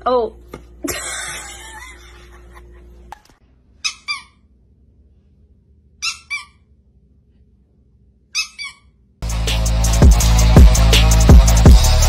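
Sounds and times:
squeaky toy squeaks: 0:03.8 - 0:04.5, 0:06.0 - 0:06.7, 0:08.3 - 0:09.0.

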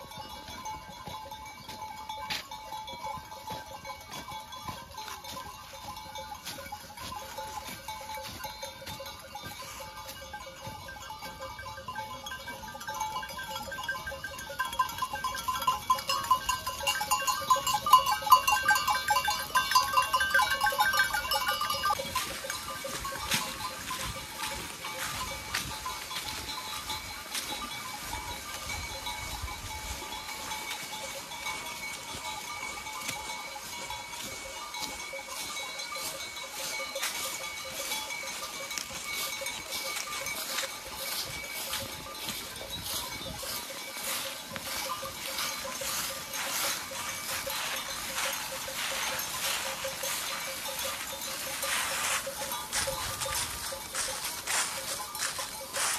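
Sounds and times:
hooves on dry leaves: 0:00.0 - 0:55.9.

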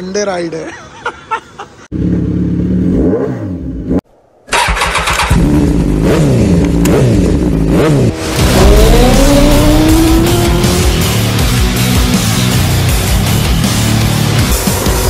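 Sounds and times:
motorcycle engine revving: 0:01.9 - 0:15.0.

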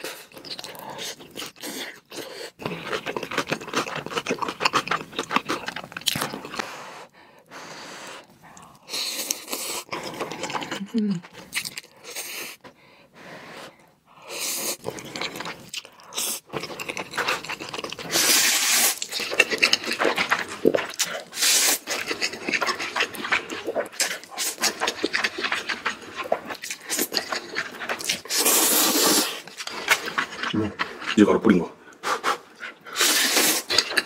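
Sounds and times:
chewing: 0:00.0 - 0:06.7, 0:08.3 - 0:12.7, 0:14.4 - 0:34.0
loud noodle slurps: 0:17.2 - 0:27.4, 0:28.0 - 0:30.2, 0:32.0 - 0:34.0.

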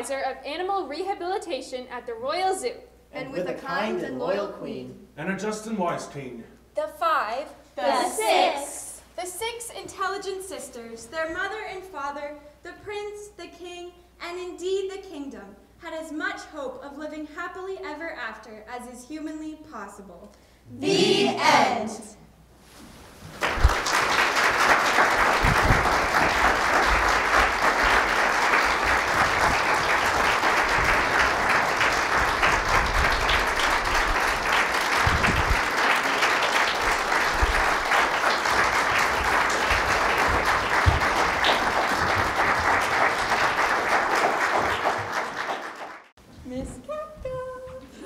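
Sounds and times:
audience applauding: 0:23.4 - 0:46.1.

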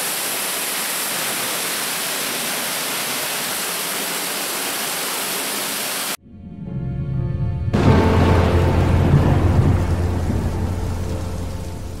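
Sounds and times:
water rushing through culvert: 0:00.0 - 0:06.2.

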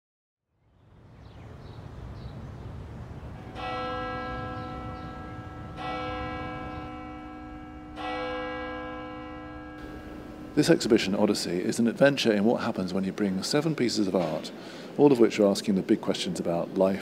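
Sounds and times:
church bell tolling: 0:03.4 - 0:12.3.

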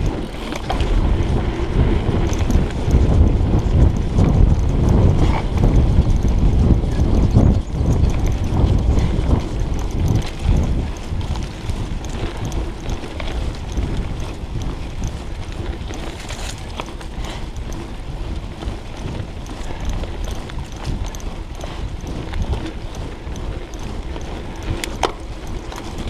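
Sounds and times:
bike rattling over bumps: 0:00.0 - 0:26.0
bike tyre noise on dirt: 0:00.0 - 0:26.0
wind rumble on microphone: 0:00.0 - 0:26.0.

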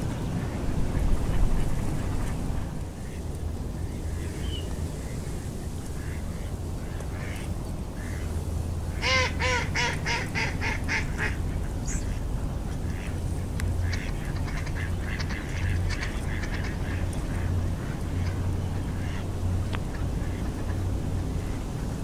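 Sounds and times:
flock of ducks calling: 0:00.0 - 0:22.0
duck quacking: 0:09.0 - 0:20.8.

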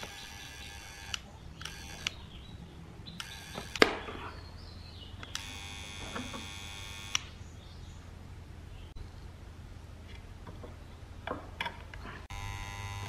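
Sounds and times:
soldering gun buzzing: 0:05.4 - 0:07.3, 0:12.3 - 0:13.0.

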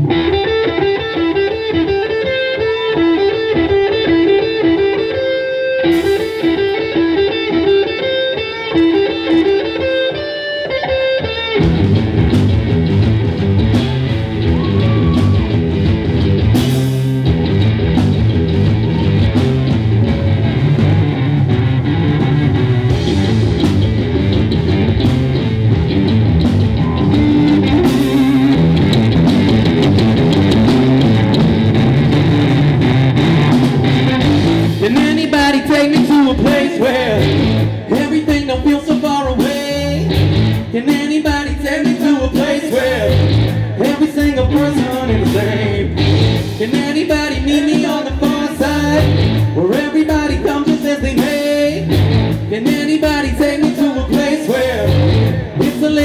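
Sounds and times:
bass and drums: 0:00.0 - 0:56.0
electric guitar melody: 0:00.0 - 0:56.0.

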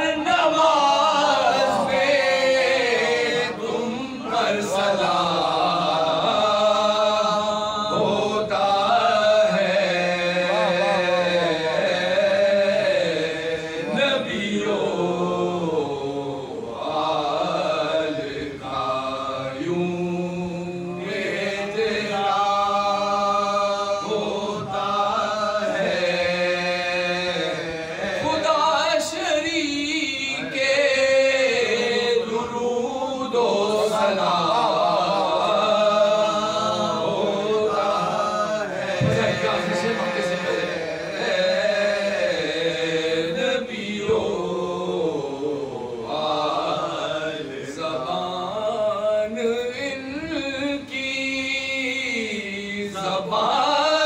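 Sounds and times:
lead male singer chanting: 0:00.0 - 0:16.1, 0:19.6 - 0:45.3
men chanting together: 0:00.0 - 0:54.0.

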